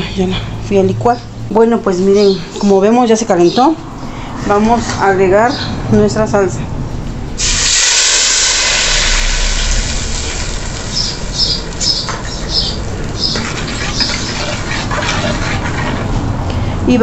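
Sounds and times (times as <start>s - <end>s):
salsa sizzling in hot oil: 7.4s - 15.8s.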